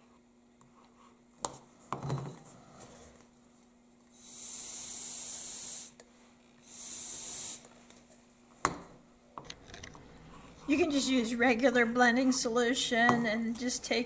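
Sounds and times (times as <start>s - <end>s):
canned air hissing: 4.1s - 6.0s, 6.6s - 7.7s.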